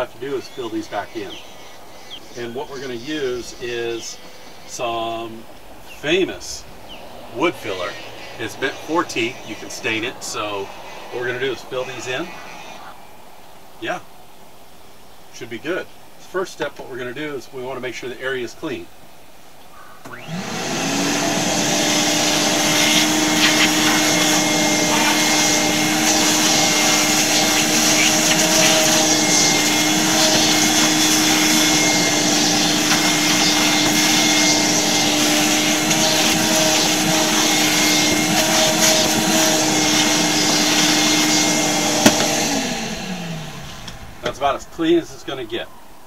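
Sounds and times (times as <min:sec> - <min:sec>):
shop vacuum running: 0:20.0 - 0:44.6.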